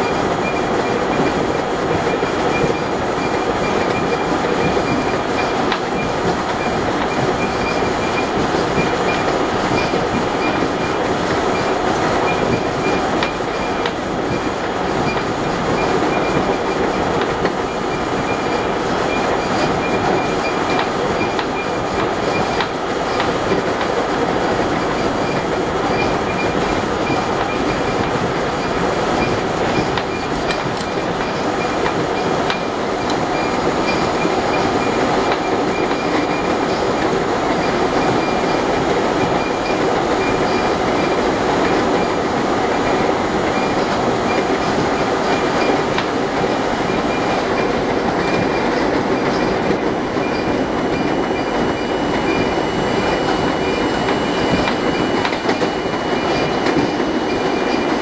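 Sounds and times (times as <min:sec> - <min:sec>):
subway car rumble: 0:00.0 - 0:58.0.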